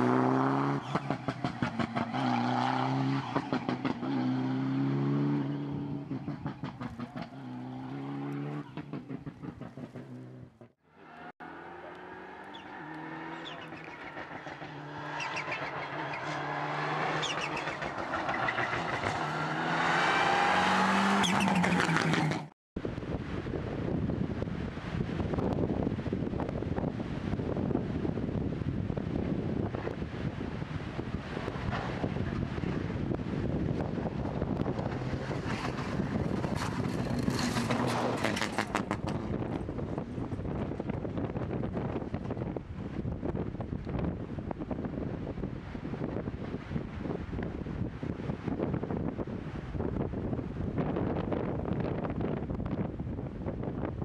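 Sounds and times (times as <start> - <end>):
rally car engine revving: 0.0 - 22.5
wind buffeting microphone: 22.8 - 54.0
gravel crunching under tyres: 34.8 - 39.3.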